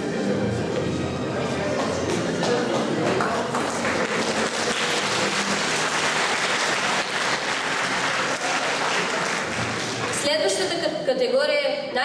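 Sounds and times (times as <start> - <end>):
audience clapping: 1.7 - 10.5.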